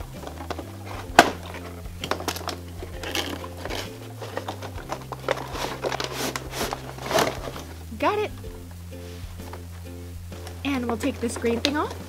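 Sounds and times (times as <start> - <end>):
soft background music: 0.0 - 12.0
plastic packaging clicks and scrapes: 0.2 - 7.8.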